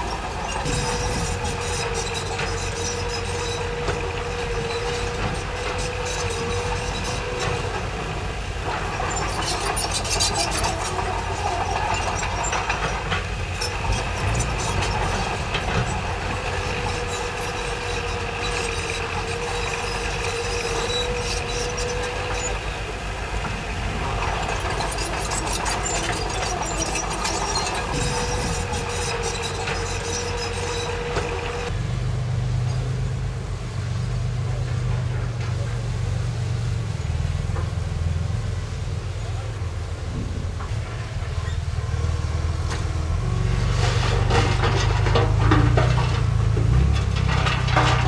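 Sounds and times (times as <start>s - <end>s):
diesel engine running: 0.0s - 48.0s
metallic clanks: 43.6s - 48.0s.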